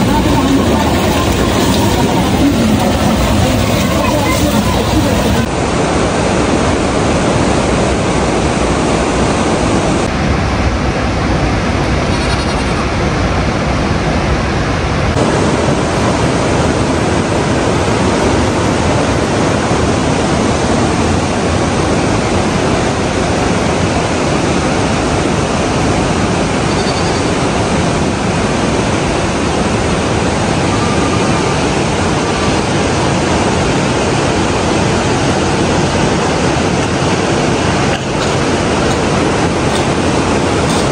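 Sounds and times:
river rushing over rocks: 0.0s - 11.8s, 27.4s - 40.9s.

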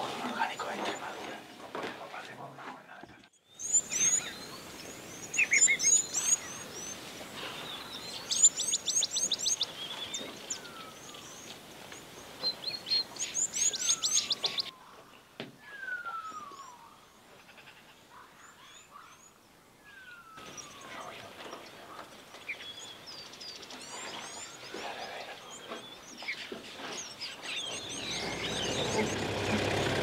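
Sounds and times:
steady background hiss: 0.0s - 28.8s
birds chirping: 0.0s - 30.0s
bird whistle falling in pitch: 15.6s - 16.9s.

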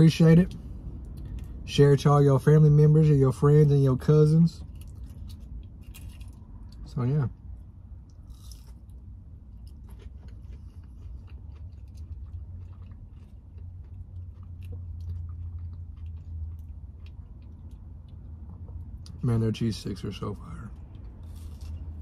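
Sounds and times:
steady low hum: 0.0s - 22.0s
crunchy chewing: 8.0s - 19.2s, 20.7s - 22.0s.

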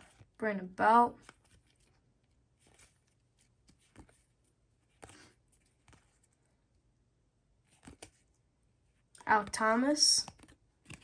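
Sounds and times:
cards being flipped: 0.0s - 0.4s, 1.2s - 6.4s, 7.6s - 8.4s, 10.2s - 11.0s.

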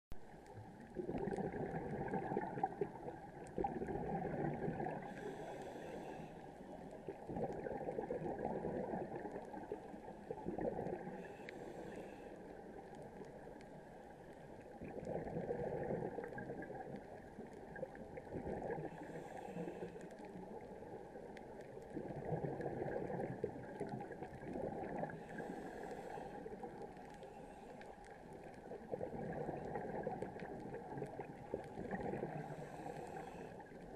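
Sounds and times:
exhaled bubbles gurgling: 0.2s - 33.9s
regulator inhale hiss: 5.0s - 6.8s, 11.1s - 12.7s, 18.9s - 20.2s, 25.2s - 28.0s, 32.4s - 33.9s.

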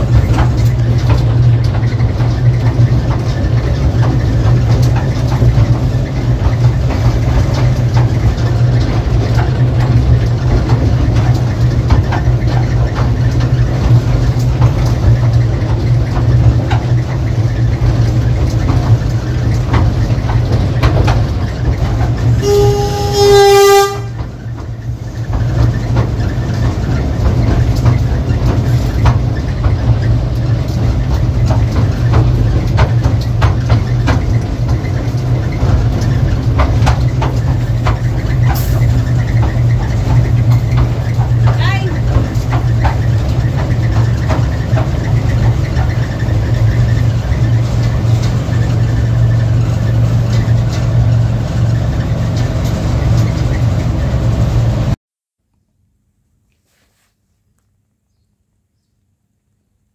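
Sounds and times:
train running on track: 0.0s - 55.0s
train horn blast: 22.4s - 24.2s.

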